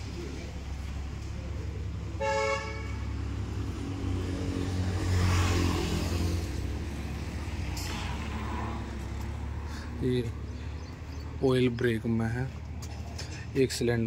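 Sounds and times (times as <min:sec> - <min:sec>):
vehicle engine passing: 0:00.0 - 0:13.6
vehicle horn toot: 0:02.2 - 0:03.1.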